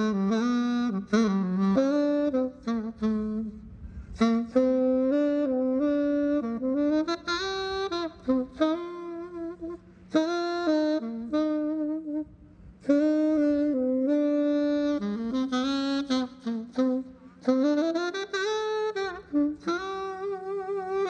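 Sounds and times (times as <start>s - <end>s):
tenor saxophone slow melody: 0.0s - 21.0s
saxophonist breaths: 3.7s - 4.2s.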